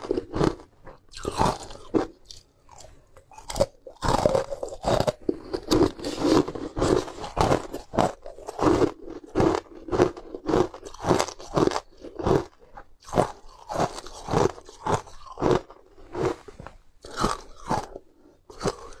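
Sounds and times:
ice being chewed crunching: 0.0 - 19.0.

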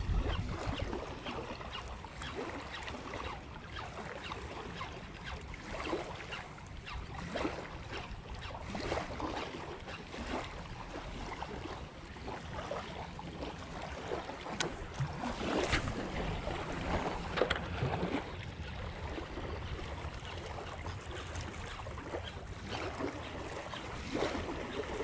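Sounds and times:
wind rumble on microphone: 0.0 - 1.2, 14.6 - 25.0
small waves lapping on concrete: 0.0 - 25.0.

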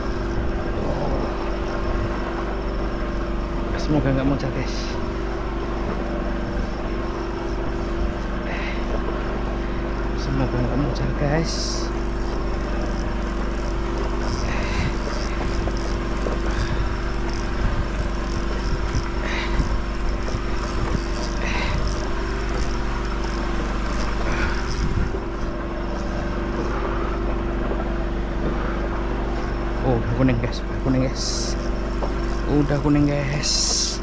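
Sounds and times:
engine running with low hum: 0.0 - 34.0.

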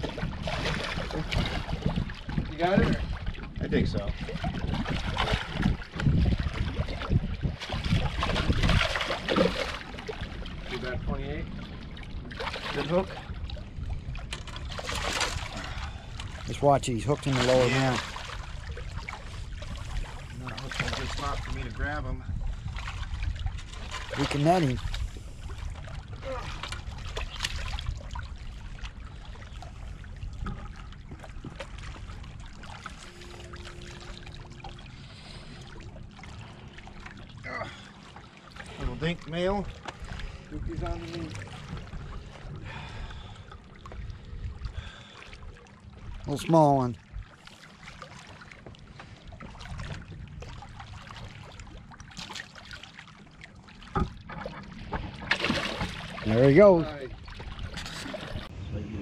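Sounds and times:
water splashing against rocks: 0.0 - 11.3, 14.2 - 21.7, 49.5 - 58.5
low steady rumble: 0.0 - 52.2
water lapping against rocks: 0.0 - 58.5.

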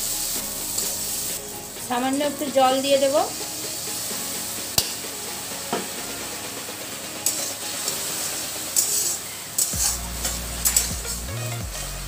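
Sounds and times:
potatoes sizzling in a pan: 0.0 - 11.4
steel spatula scraping a pan: 7.2 - 11.9.

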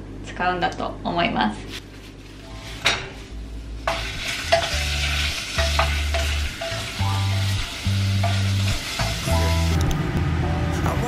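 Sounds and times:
meat sizzling in a pot: 2.5 - 9.8.

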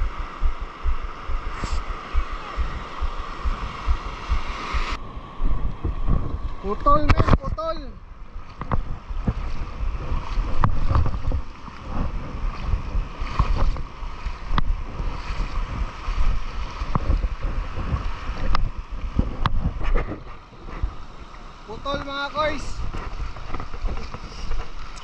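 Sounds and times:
hiss of shallow water: 0.0 - 5.0, 24.0 - 25.0
wind buffeting microphone: 0.0 - 25.0.

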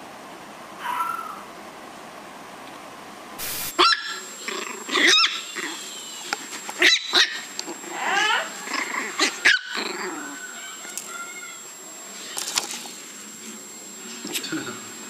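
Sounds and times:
puppy yapping: 3.8 - 11.6.

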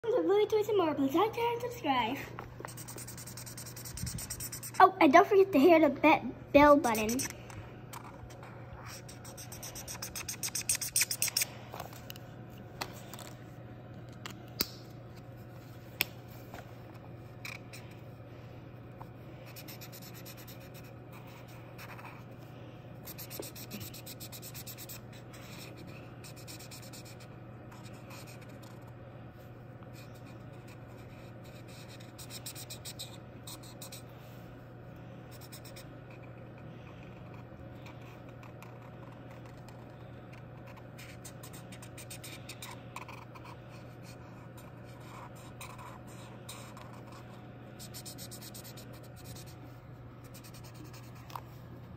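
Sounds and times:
steady low hum: 0.0 - 51.9
marker scratching on paper: 2.6 - 4.9, 6.7 - 11.5, 19.4 - 22.3, 23.0 - 28.9, 30.0 - 34.1, 35.4 - 49.6, 50.2 - 51.4.

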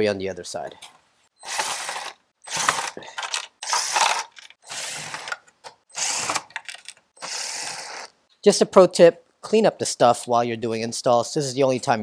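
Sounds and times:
cordless power driver spurts: 1.4 - 8.1.

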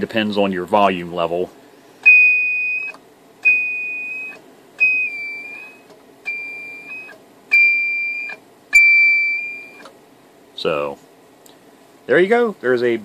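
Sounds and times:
high ringing radio ping: 2.0 - 9.9.

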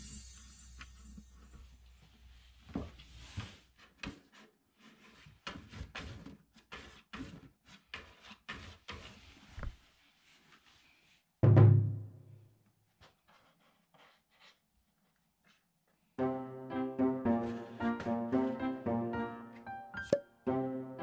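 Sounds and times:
cat scraping cardboard box: 3.0 - 10.5, 13.0 - 15.6.

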